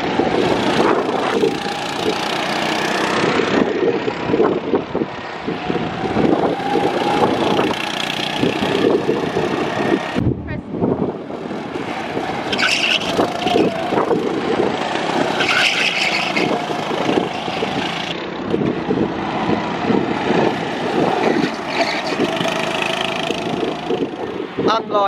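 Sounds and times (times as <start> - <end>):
go-kart engines running: 0.0 - 10.2, 11.1 - 25.0.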